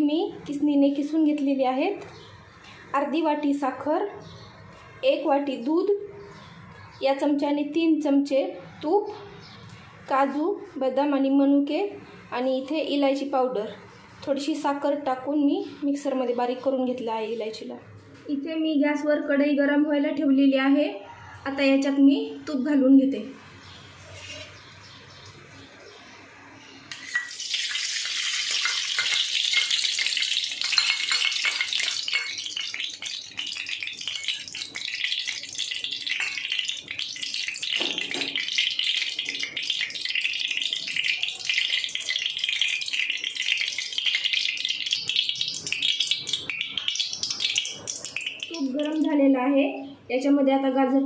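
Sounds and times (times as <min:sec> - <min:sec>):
ghee sizzling in a pan: 0:26.9 - 0:49.0.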